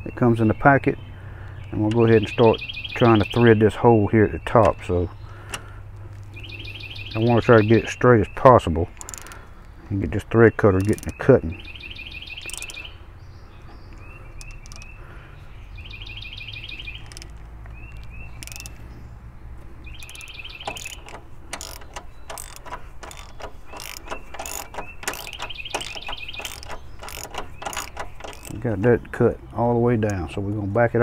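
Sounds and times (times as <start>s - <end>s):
bird trilling: 0.0s - 19.2s, 19.8s - 30.3s
socket ratchet clicking: 8.9s - 9.7s, 10.6s - 11.3s, 12.0s - 12.9s, 13.9s - 15.0s, 16.6s - 18.9s, 19.8s - 28.9s.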